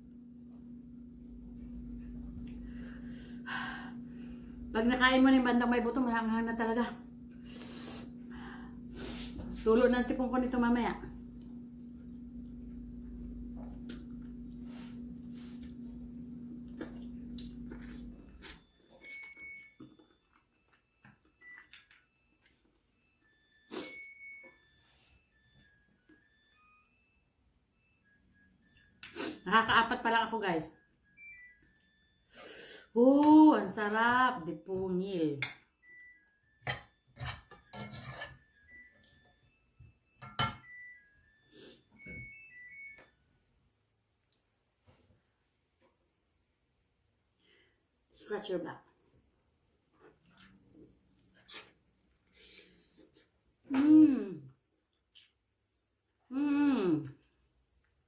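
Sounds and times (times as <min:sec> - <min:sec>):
steady low hum: 0:00.0 - 0:19.8
metal spoon scraping a saucepan: 0:36.7 - 0:38.4
wet mouth eating sounds: 0:50.2 - 0:52.4.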